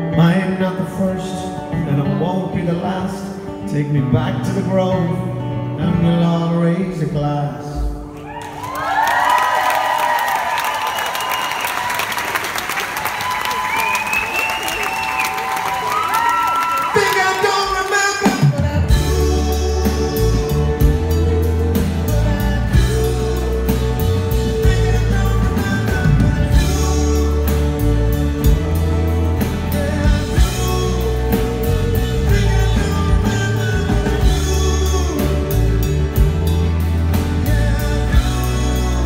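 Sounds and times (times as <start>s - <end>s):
man singing: 0.0s - 8.0s, 16.9s - 39.0s
live pop-rock band: 0.0s - 39.0s.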